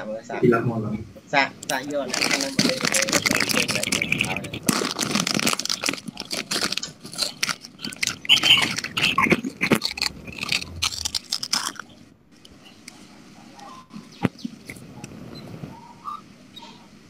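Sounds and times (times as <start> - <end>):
crunching and crackling: 1.6 - 13.0.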